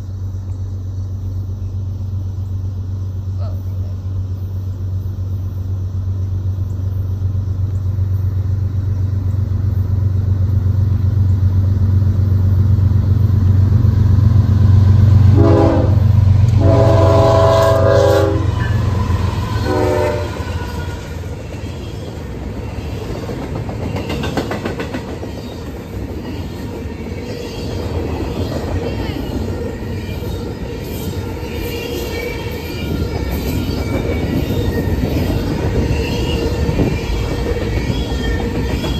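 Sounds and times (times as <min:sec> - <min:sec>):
diesel locomotive engine drone: 0:00.0 - 0:38.9
train cars rumbling on rails: 0:00.0 - 0:38.9
locomotive air horn blasts: 0:15.3 - 0:21.1.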